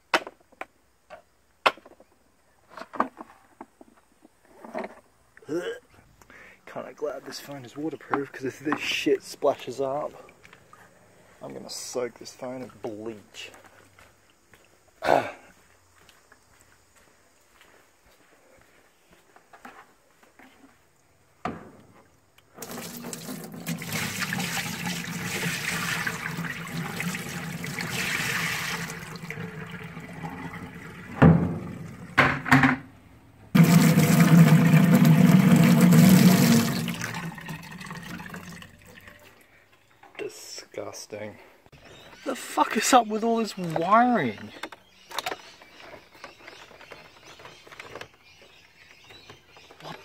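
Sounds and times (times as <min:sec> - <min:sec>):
water pouring into a basin: 0:22.6 - 0:32.2, 0:33.6 - 0:39.4.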